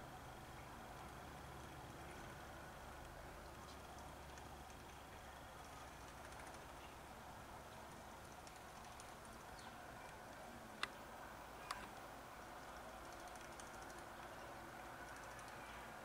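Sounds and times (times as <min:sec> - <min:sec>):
sparrows splashing and fluttering: 0:03.2 - 0:10.5, 0:12.4 - 0:16.0
sharp clicks: 0:12.6 - 0:15.6.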